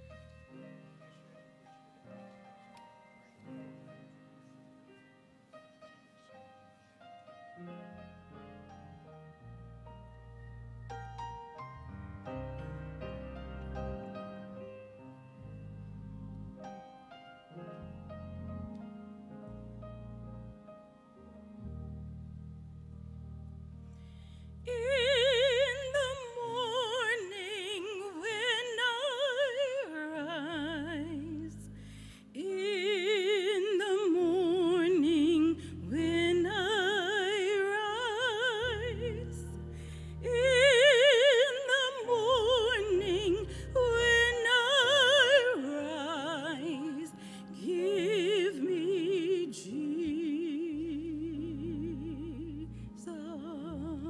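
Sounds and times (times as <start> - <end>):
sustained low keyboard chords: 7.6 - 26.8, 49.8 - 54.0
woman singing operatically: 24.7 - 31.7, 32.3 - 39.6, 40.2 - 54.0.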